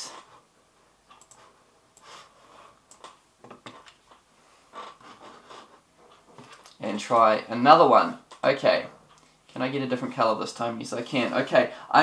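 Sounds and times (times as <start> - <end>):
computer mouse clicks: 1.1 - 2.1, 2.9 - 4.2.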